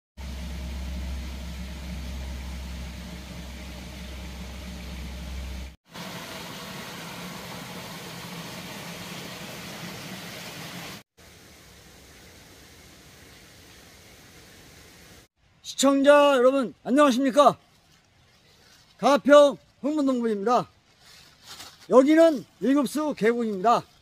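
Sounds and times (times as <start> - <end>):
steady low rumble: 0.2 - 5.8
stream water flowing: 0.4 - 15.3
small waterfall rushing: 3.8 - 15.3.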